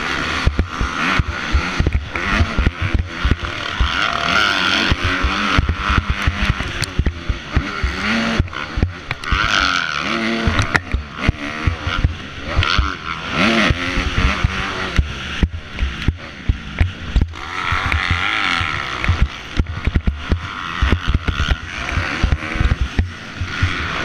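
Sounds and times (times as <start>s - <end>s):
motocross engine revving: 0.0s - 24.0s
wind rumble on microphone: 0.0s - 24.0s.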